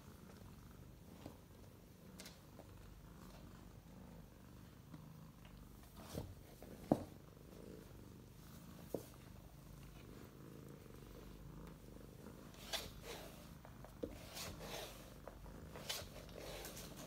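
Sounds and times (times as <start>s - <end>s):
cat purring: 0.0s - 17.0s
rustles and scuffs of movement: 12.5s - 17.0s.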